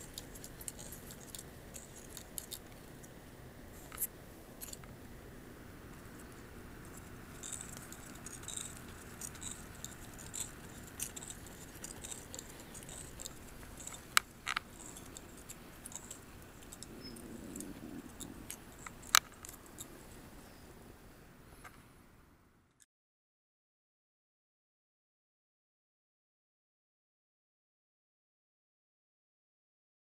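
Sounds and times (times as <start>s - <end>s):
light wind rush: 0.0s - 22.2s.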